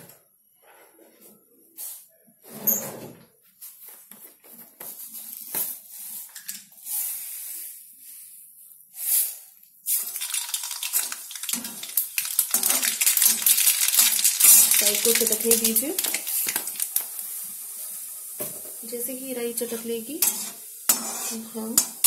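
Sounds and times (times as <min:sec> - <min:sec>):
hot oil sizzling: 0:09.0 - 0:22.0
mustard seeds popping in oil: 0:10.0 - 0:17.2.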